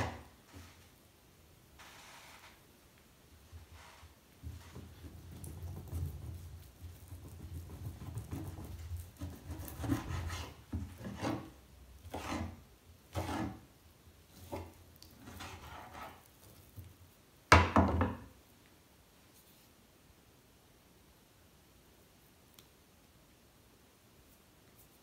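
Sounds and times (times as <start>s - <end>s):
knife sawing raw meat: 9.3s - 11.5s, 12.1s - 13.6s, 15.2s - 16.2s
knock on cutting board: 17.5s - 18.3s.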